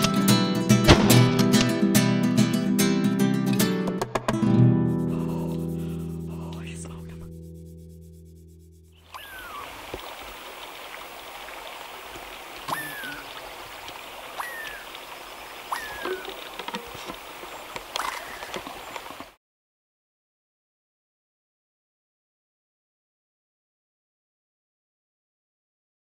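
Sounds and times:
strummed acoustic guitar music: 0.0s - 8.2s
short falling chirp: 9.0s - 9.6s, 12.7s - 13.2s, 14.4s - 14.9s, 15.7s - 16.4s
rushing water background: 9.0s - 19.4s.

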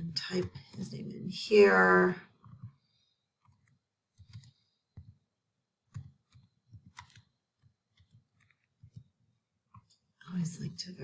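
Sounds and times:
typing on a computer keyboard: 3.4s - 5.2s, 5.9s - 9.1s.

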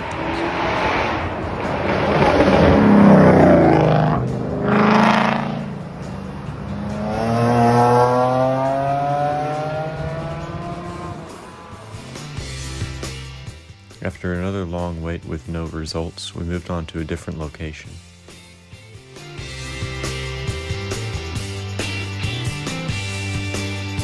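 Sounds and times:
car accelerating past: 0.0s - 12.5s
cars driving past: 0.0s - 12.7s.

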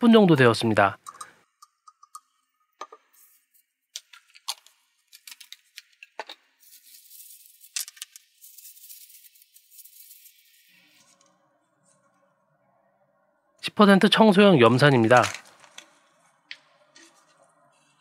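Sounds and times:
paper towel rustling: 14.9s - 15.8s.

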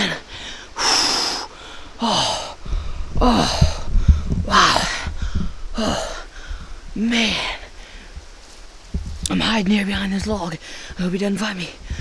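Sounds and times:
man panting: 0.2s - 8.0s
low rumble: 1.8s - 11.1s.

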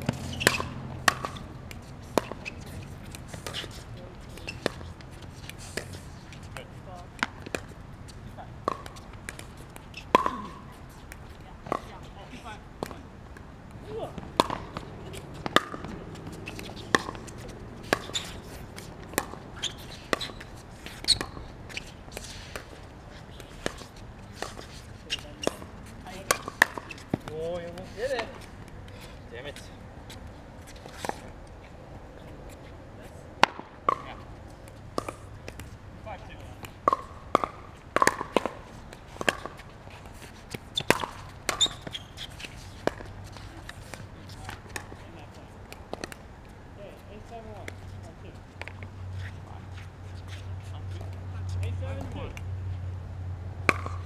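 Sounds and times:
short high squeaks: 0.2s - 0.8s, 17.9s - 18.7s, 19.5s - 22.5s, 40.7s - 42.8s
paddles hitting plastic ball: 14.2s - 21.4s, 33.4s - 45.0s, 53.6s - 54.0s.

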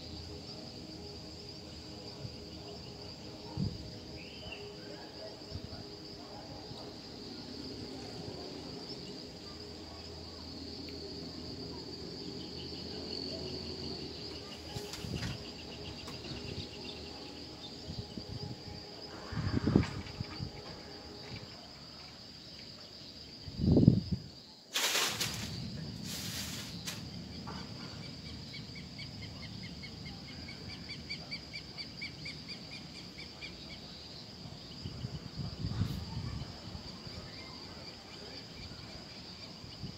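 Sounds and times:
insect pulsed chirps: 0.0s - 35.0s
insects whining: 0.0s - 39.9s
rustling scrape: 24.7s - 27.1s.

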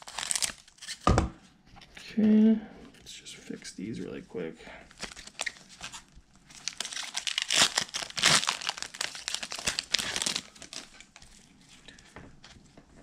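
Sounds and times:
foil wrapper crinkling and tearing: 0.0s - 1.1s, 4.9s - 11.5s.

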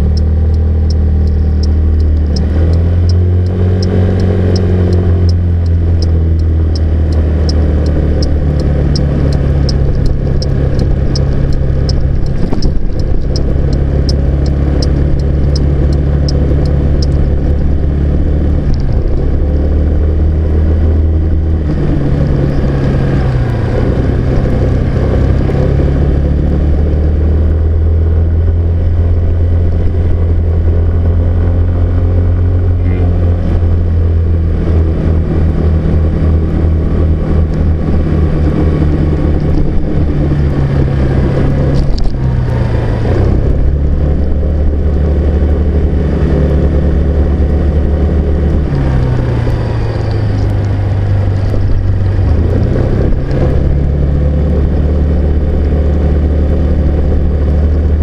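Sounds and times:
car engine running: 0.0s - 58.0s
road and tyre noise: 0.0s - 58.0s.

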